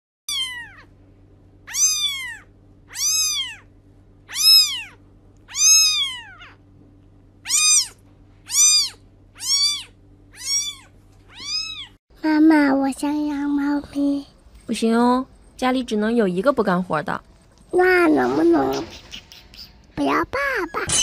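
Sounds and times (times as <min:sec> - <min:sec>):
kitten meowing: 0:00.3 - 0:00.9, 0:01.7 - 0:03.7, 0:04.3 - 0:06.6, 0:07.4 - 0:12.0.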